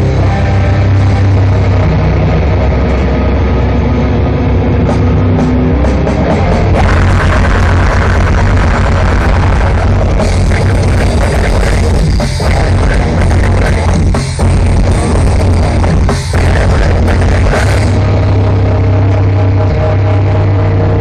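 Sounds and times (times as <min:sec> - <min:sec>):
low sustained droning note: 0:00.0 - 0:10.2, 0:17.8 - 0:21.0
distorted metal band playing live: 0:00.0 - 0:21.0.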